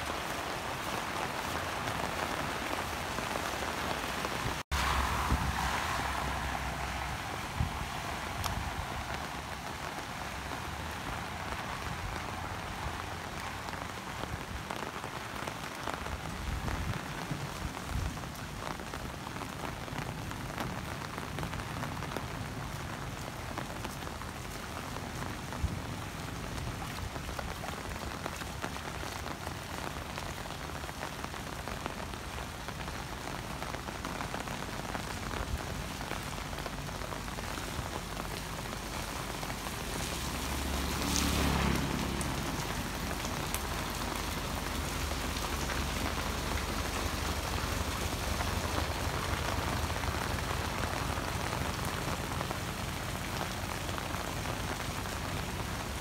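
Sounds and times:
heavy rain on pavement: 0.0 - 56.0
motorbike passing: 39.1 - 53.2.

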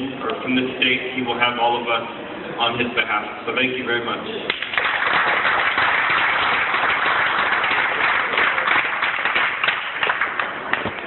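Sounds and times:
audience applauding: 4.5 - 11.0.

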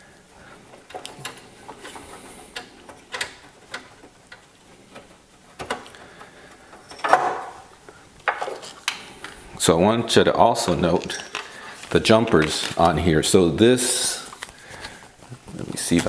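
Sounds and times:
clicks and knocks of hardware handling: 0.7 - 9.0.

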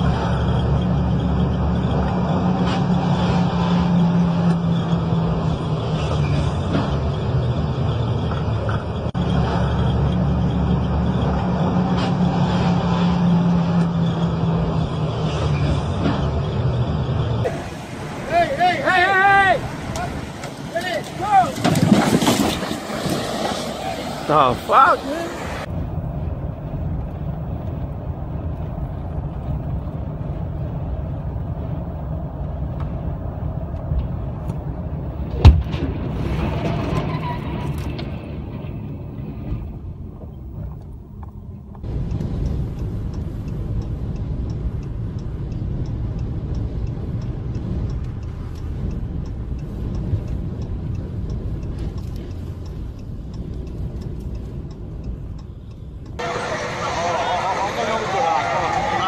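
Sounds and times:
logs rumbling and clattering: 0.0 - 24.7, 25.6 - 43.1
loud truck crash: 0.0 - 25.7, 35.3 - 39.6, 56.2 - 59.0
highway road and wind noise: 0.0 - 59.0
road rumble inside car: 0.0 - 59.0.

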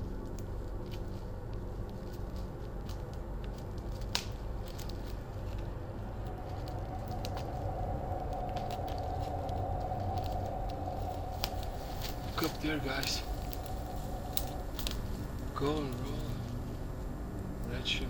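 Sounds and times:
low steady drone: 0.0 - 18.0
twig snapping: 1.8 - 15.5
held higher tone: 5.8 - 15.6
footsteps crunching on leaves: 10.3 - 16.5.

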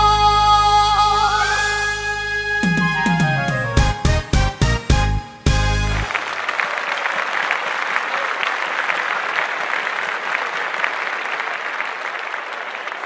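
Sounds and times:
crowd applauding: 5.6 - 13.0.

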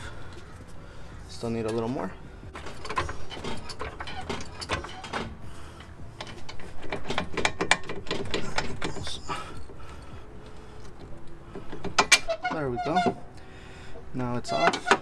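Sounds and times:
metallic clicking and clatter: 2.6 - 9.7.

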